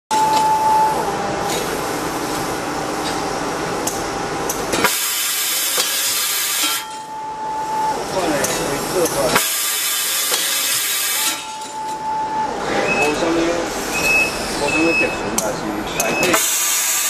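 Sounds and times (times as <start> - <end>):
spring machine whine: 0.1 - 17.0
hiss: 4.8 - 6.8, 9.4 - 11.4, 16.4 - 17.0.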